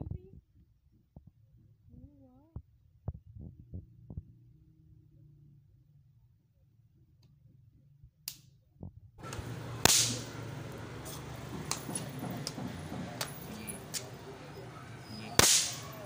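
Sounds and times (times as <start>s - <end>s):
snap-pop fireworks cracking: 9.2s - 14.2s, 15.3s - 16.0s.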